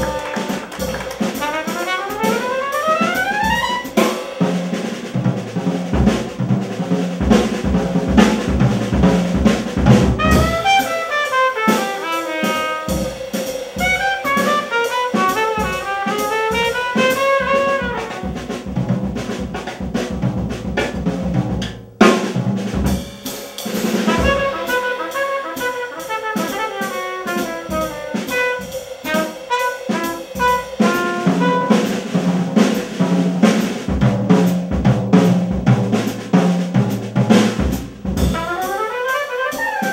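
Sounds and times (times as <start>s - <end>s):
trumpet playing fast runs: 0.0s - 4.3s, 9.9s - 13.2s, 13.8s - 18.7s, 23.9s - 32.2s, 38.2s - 39.9s
drum kit keeping time: 0.0s - 39.9s
piano: 0.0s - 39.9s.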